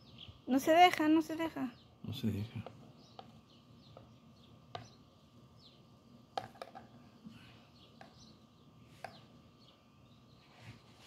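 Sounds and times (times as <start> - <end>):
faint bird chirps: 0.0 - 11.0
tweezers tapping plastic bowl: 4.7 - 5.0, 6.4 - 6.9, 8.0 - 8.3.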